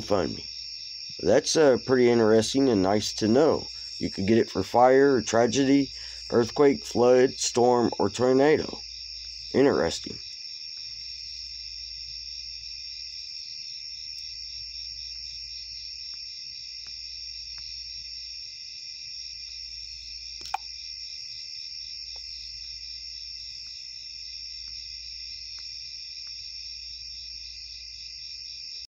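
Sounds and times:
crickets chirping: 0:00.0 - 0:28.9
faint ticks: 0:16.0 - 0:17.8, 0:22.1 - 0:22.8, 0:24.6 - 0:24.9, 0:25.5 - 0:26.5
sharp click: 0:20.4 - 0:20.7.

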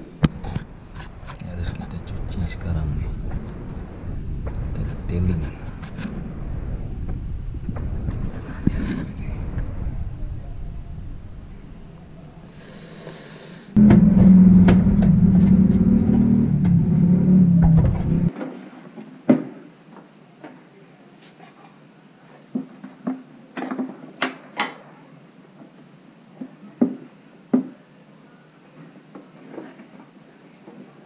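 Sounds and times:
loud steady hum: 0:00.0 - 0:18.3
short hiss: 0:12.4 - 0:13.8.

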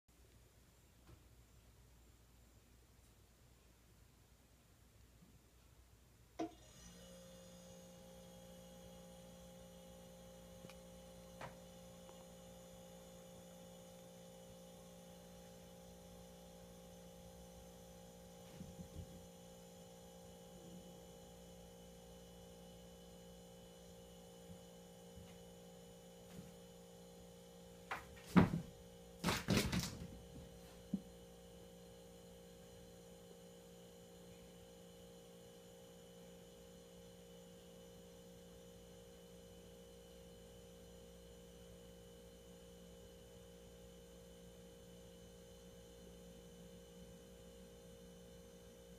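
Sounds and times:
faint steady hum: 0:00.1 - 0:48.9
cat knocking against cabinet: 0:27.9 - 0:30.1
cat scrambling on tile floor: 0:27.9 - 0:30.5.

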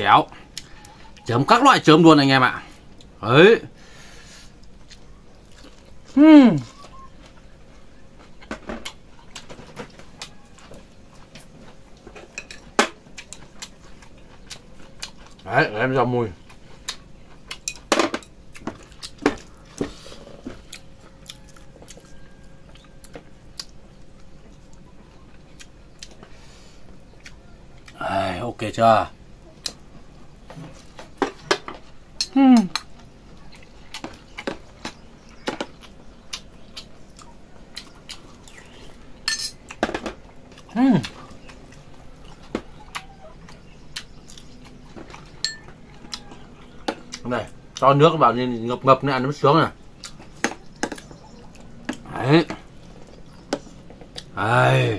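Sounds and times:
person chewing: 0:04.3 - 0:15.5, 0:16.4 - 0:17.9, 0:18.5 - 0:28.0, 0:32.2 - 0:47.8, 0:50.0 - 0:52.1
metal spoon clinking on bowls: 0:39.3 - 0:39.6, 0:45.4 - 0:45.8.

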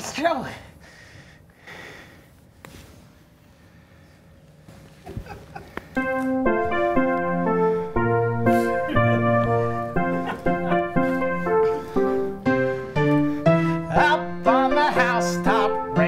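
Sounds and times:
electric piano chords with bass: 0:06.0 - 0:16.0.

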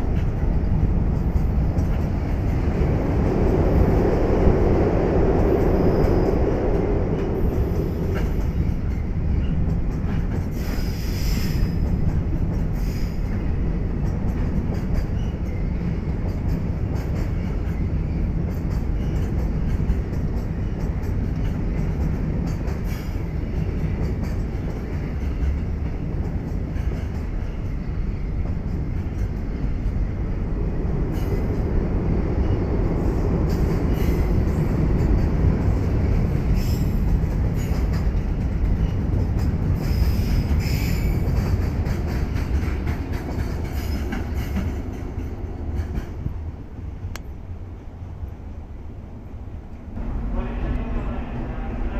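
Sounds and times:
train wheels rumbling on rails: 0:00.0 - 0:51.9.

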